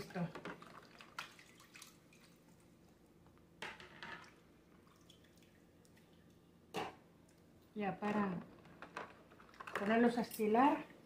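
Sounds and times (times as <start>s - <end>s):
water dripping and splashing: 0.5s - 2.8s, 4.2s - 6.5s.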